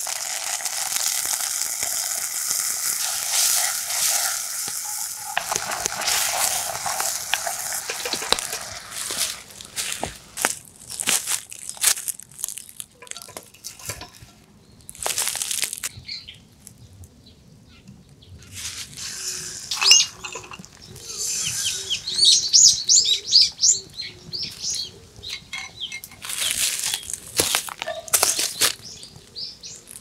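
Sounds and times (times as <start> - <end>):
eggs sizzling in frying pan: 0.0 - 14.3, 18.9 - 22.8
wood fire crackling: 0.0 - 15.9
birds chirping: 19.2 - 27.2.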